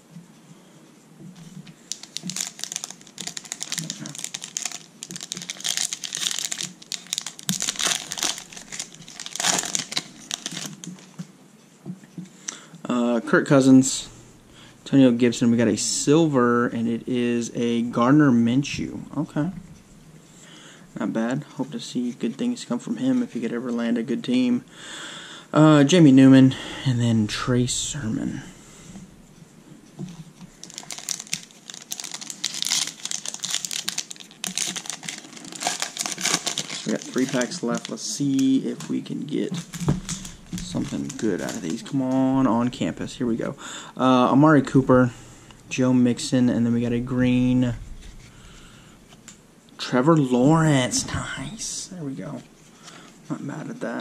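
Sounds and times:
foil wrapper crinkling and tearing: 1.8s - 11.1s, 30.5s - 43.2s.

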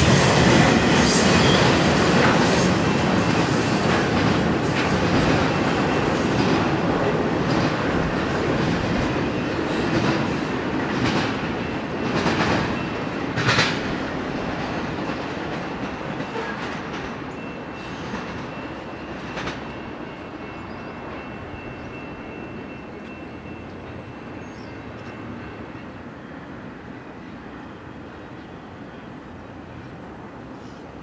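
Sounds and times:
train wheels clacking over rail joints: 0.0s - 19.9s
freight train rumble: 0.0s - 31.0s.

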